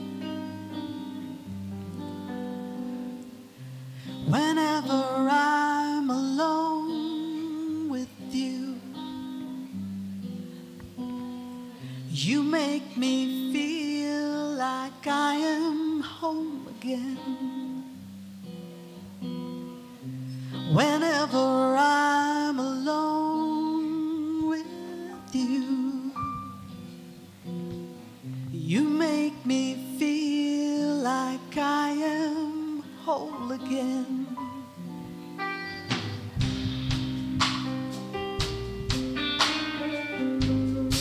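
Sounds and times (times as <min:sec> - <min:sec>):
soft instrumental accompaniment: 0:00.0 - 0:41.0
woman singing love song: 0:03.9 - 0:10.6, 0:11.7 - 0:18.3, 0:20.1 - 0:27.1, 0:28.3 - 0:35.3, 0:39.7 - 0:41.0.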